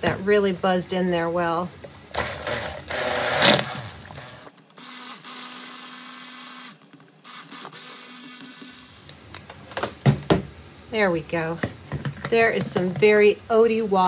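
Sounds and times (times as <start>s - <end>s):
stick blender motor humming: 2.1s - 9.1s.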